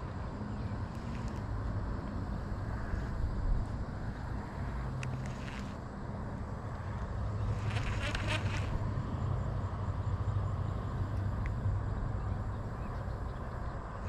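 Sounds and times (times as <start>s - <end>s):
fishing reel whirring: 7.5s - 8.8s.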